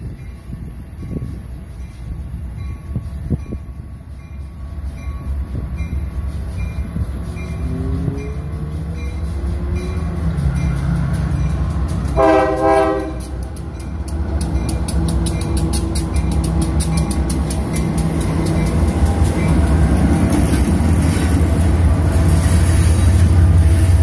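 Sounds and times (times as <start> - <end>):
diesel locomotive rumble: 0.0 - 24.0
locomotive air horn: 12.1 - 13.4.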